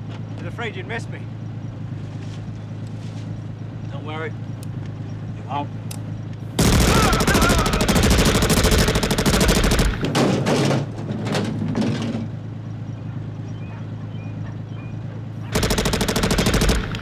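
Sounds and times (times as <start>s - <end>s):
submachine gun automatic fire: 6.6s - 10.6s, 15.5s - 17.0s.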